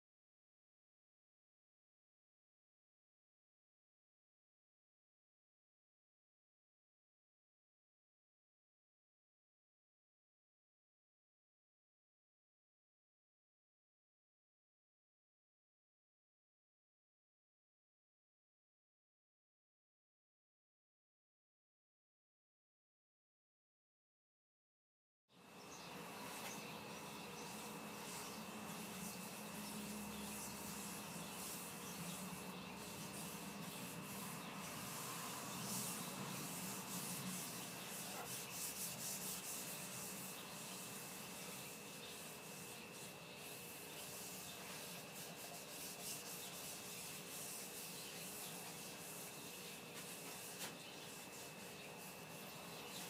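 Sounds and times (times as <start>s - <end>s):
cloth wiping oiled wood: 26.0s - 53.0s.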